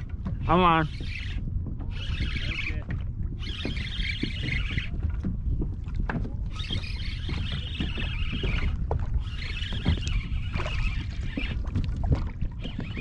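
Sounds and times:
water lapping against kayak hull: 0.0 - 13.0
wind rumbling on microphone: 0.0 - 13.0
high rapid whirring: 3.4 - 4.9, 6.5 - 11.6.

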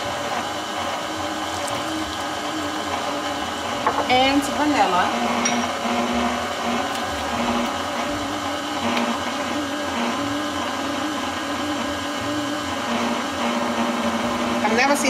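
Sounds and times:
stand mixer motor hum: 0.0 - 15.0.

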